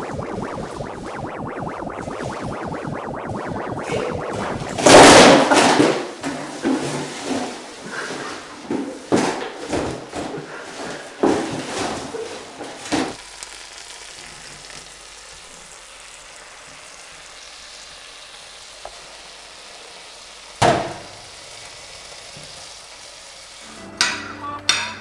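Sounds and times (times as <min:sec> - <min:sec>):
bacon sizzling in frying pan: 0:13.2 - 0:23.7.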